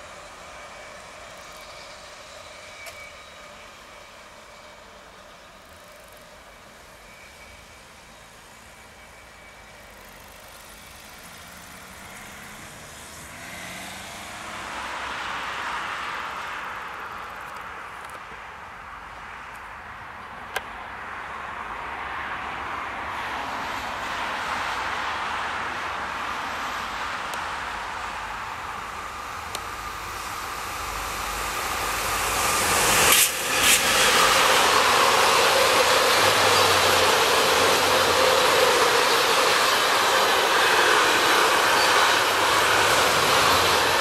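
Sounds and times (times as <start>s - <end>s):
train rolling: 0.0s - 13.4s, 23.2s - 44.0s
car passing: 12.1s - 15.9s, 30.2s - 44.0s.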